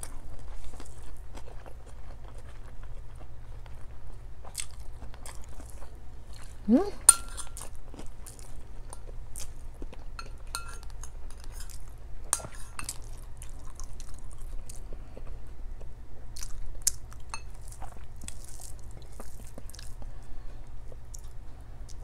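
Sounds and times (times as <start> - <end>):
chewing: 0.0 - 22.0
steady low hum: 0.0 - 22.0
metal spoon clinking on bowls: 7.1 - 7.6, 10.2 - 11.7, 12.3 - 13.0, 17.3 - 17.6.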